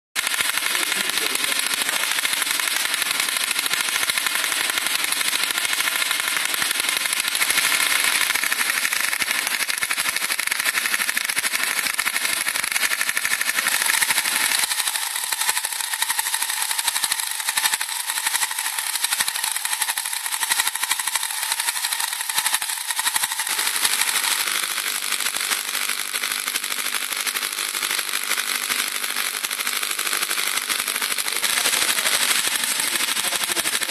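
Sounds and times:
tesla coil buzzing discharge: 0:00.2 - 0:24.4.

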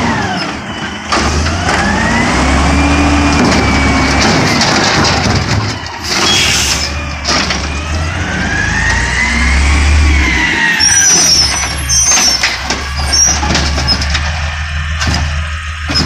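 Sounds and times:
garbage truck diesel engine: 0:00.0 - 0:16.0
short high squeal: 0:06.1 - 0:07.0, 0:10.0 - 0:13.4.

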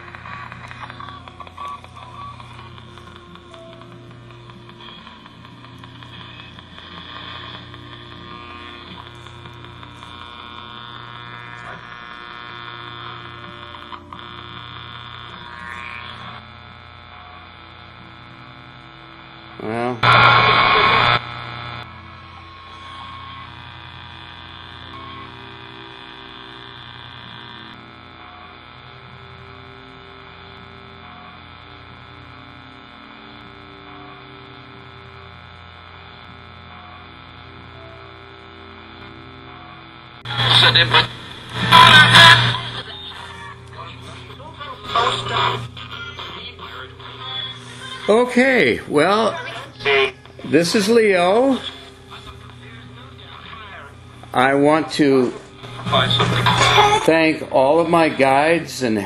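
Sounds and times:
radio scanning static: 0:00.0 - 0:59.0
loud radio burst: 0:04.7 - 0:17.8, 0:19.6 - 0:28.9, 0:40.2 - 0:59.0.

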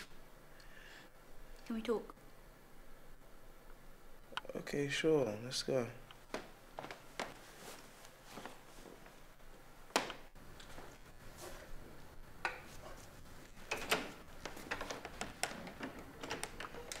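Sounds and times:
footsteps: 0:06.2 - 0:09.3, 0:10.6 - 0:13.6
wooden door opening and closing: 0:09.9 - 0:10.3, 0:13.6 - 0:17.0.

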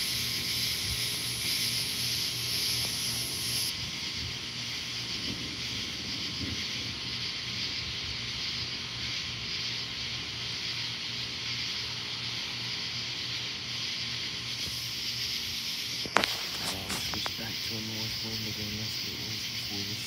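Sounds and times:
high-pitched night hiss: 0:00.0 - 0:20.0.

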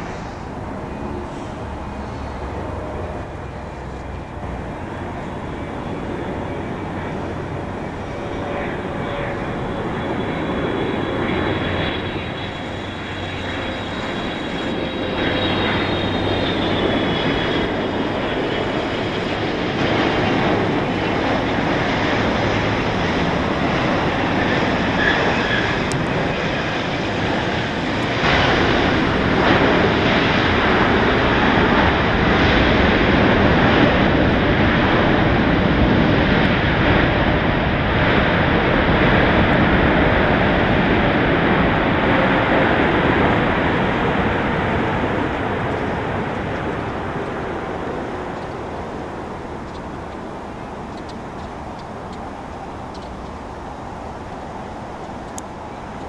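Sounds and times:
faint high whine: 0:00.0 - 0:32.0
jet engine noise: 0:00.0 - 0:56.0.

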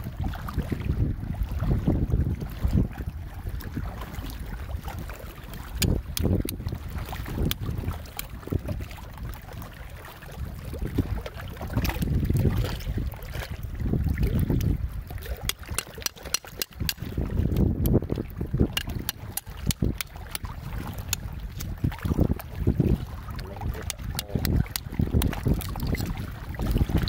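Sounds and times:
wind rumble on microphone: 0:00.0 - 0:27.0
metal hook scraping oyster shells: 0:15.4 - 0:17.1, 0:18.7 - 0:20.4, 0:23.8 - 0:26.2.

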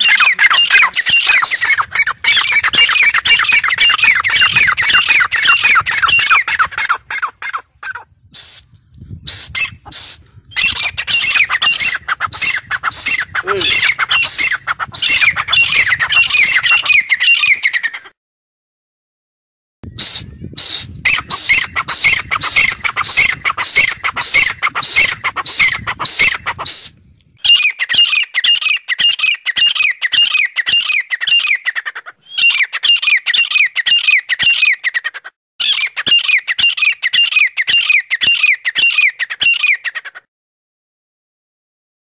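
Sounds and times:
francolin calling shrill notes: 0:00.0 - 0:18.0.

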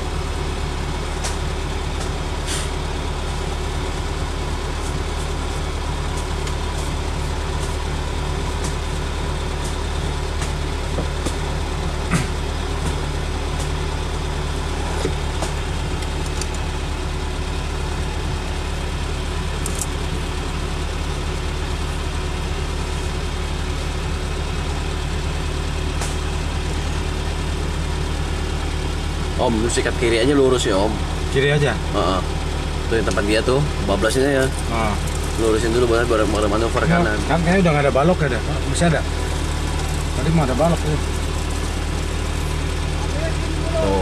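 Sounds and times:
vehicle engine idling: 0:00.0 - 0:44.0.

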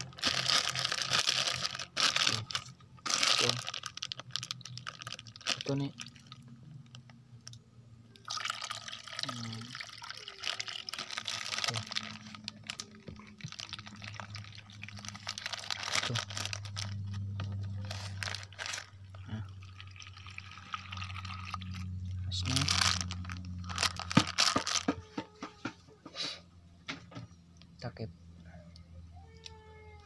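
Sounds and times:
water pouring and splashing: 0:08.2 - 0:17.0, 0:17.9 - 0:24.8.

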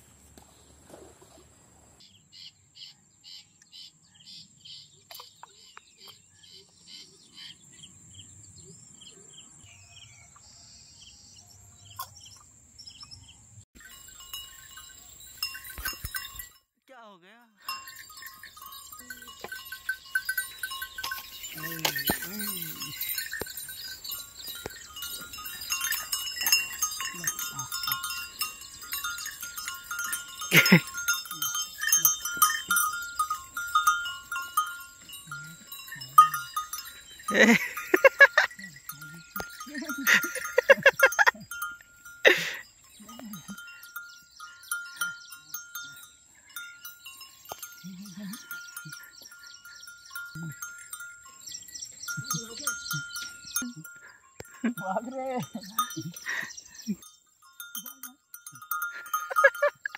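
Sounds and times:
neck bell clinking: 0:13.8 - 0:16.7, 0:17.4 - 0:59.9.

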